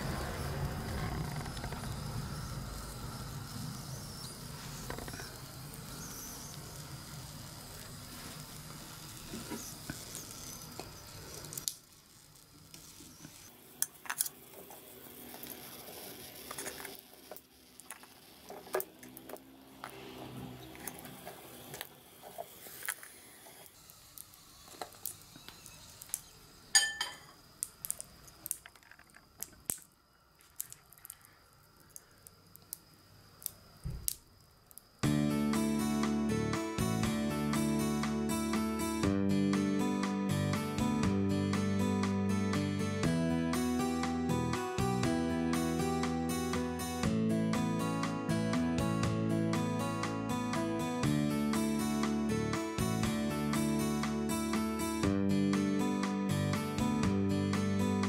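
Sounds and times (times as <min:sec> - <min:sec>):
low rushing noise: 0:00.0 - 0:04.7.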